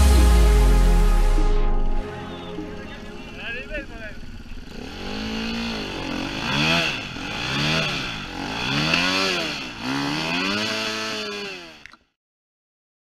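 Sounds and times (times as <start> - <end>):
dirt bike engine revving: 4.2 - 11.8.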